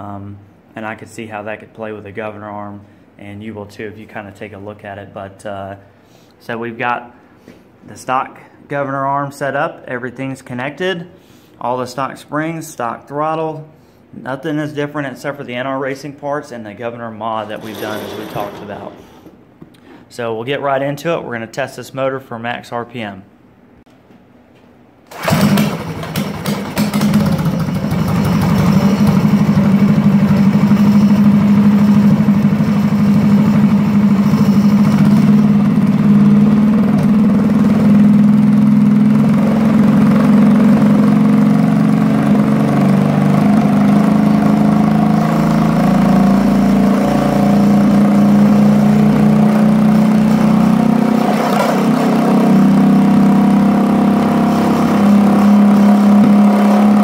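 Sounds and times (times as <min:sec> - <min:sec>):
small engine running loud: 0:17.5 - 0:19.0, 0:25.2 - 0:57.0.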